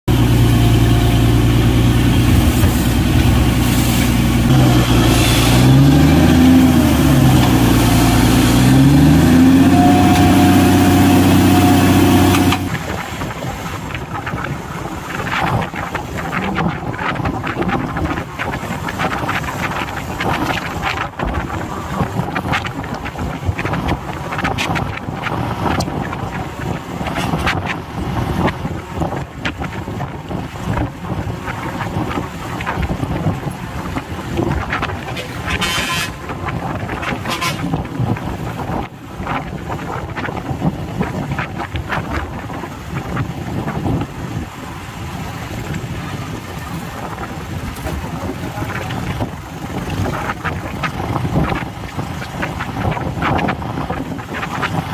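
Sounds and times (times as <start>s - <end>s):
steady whine: 0.1s - 12.8s
drilling rig engine running: 0.1s - 12.9s
rushing noise: 0.1s - 29.2s.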